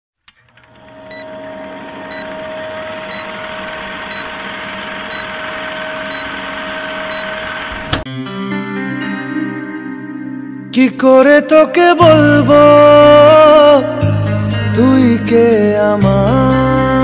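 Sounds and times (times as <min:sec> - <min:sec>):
film projector whirring: 0:00.3 - 0:08.0
short high beeps: 0:01.1 - 0:01.4, 0:02.1 - 0:07.7.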